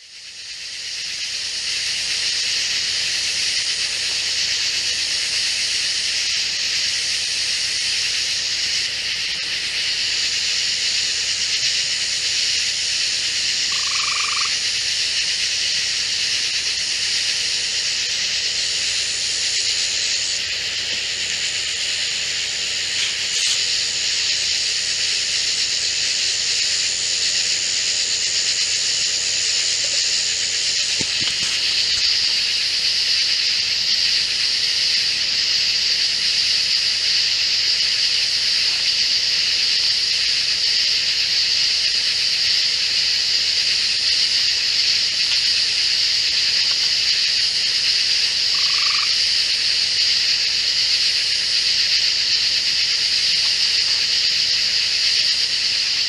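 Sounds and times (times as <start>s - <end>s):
high-pitched insect drone: 0.0s - 56.0s
short low frog call: 13.6s - 14.6s.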